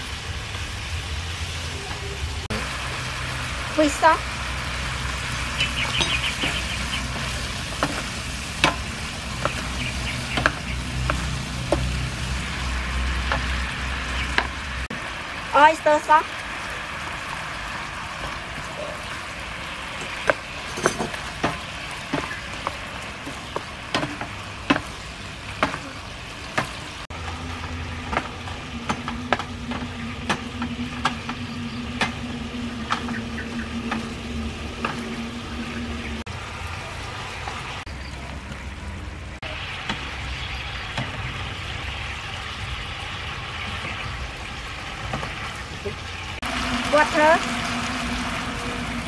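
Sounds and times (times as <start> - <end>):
chicken sizzling in a frying pan: 0.0 - 37.8, 39.4 - 49.0
spatula knocking and scraping pan: 5.8 - 12.0, 20.0 - 26.0.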